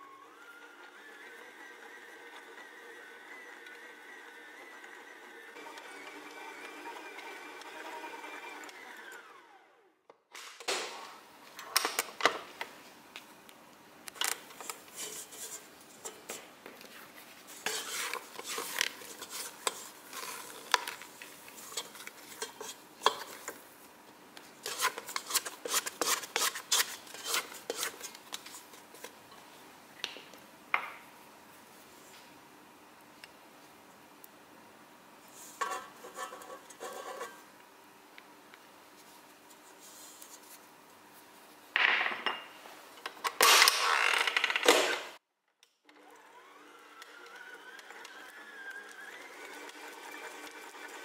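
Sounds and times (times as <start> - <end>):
mixer motor humming: 0.0 - 9.9, 45.9 - 51.0.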